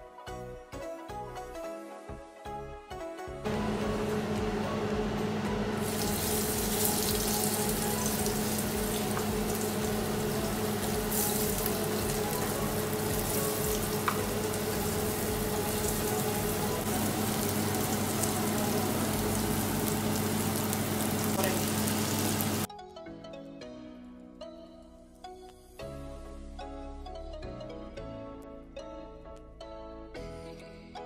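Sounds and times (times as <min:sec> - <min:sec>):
steady low hum: 0:03.5 - 0:22.7
tempeh sizzling in oil: 0:05.8 - 0:22.7.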